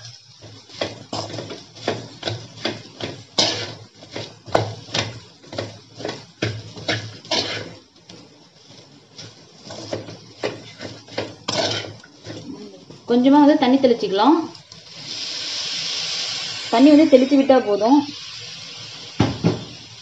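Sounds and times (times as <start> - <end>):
metal spatula scraping a pan: 0.0 - 12.5.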